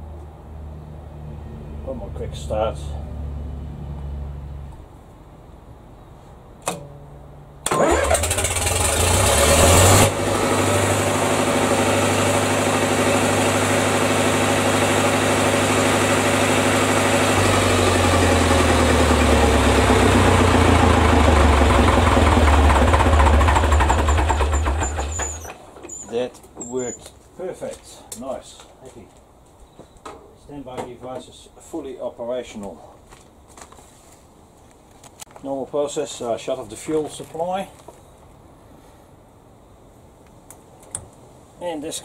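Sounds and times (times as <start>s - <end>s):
electric starter cranking: 7.6s - 14.0s, 16.9s - 25.6s
diesel engine running: 7.6s - 25.9s.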